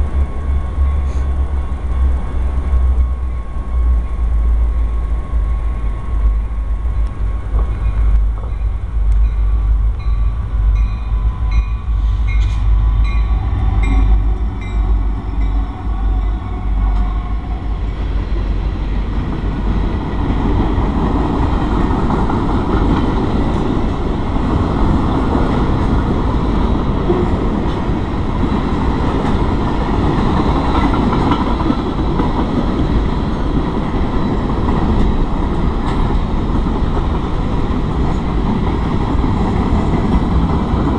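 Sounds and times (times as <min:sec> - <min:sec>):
crossing bell ringing: 0:00.0 - 0:19.9
freight train rumbling: 0:00.0 - 0:40.9
train wheels rolling: 0:00.0 - 0:40.9.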